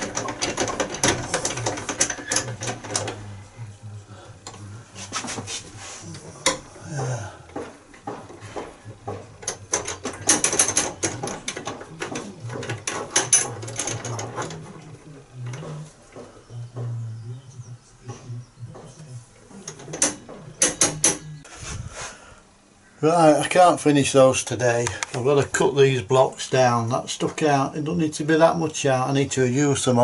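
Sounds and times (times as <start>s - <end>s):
mechanical clicking and rattling: 0.0s - 3.2s, 7.5s - 16.3s
low hum: 13.5s - 22.4s.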